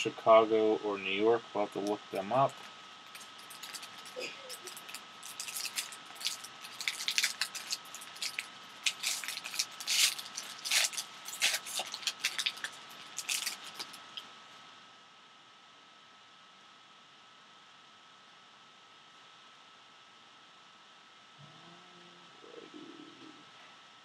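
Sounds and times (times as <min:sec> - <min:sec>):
foil wrapper crinkling and tearing: 0:02.5 - 0:14.2.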